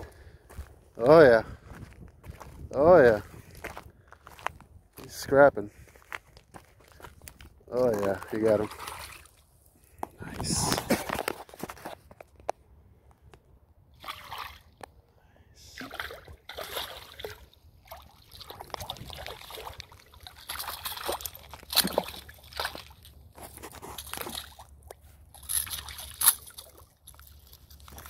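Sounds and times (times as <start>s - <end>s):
fish splashing in water: 15.8s - 23.2s.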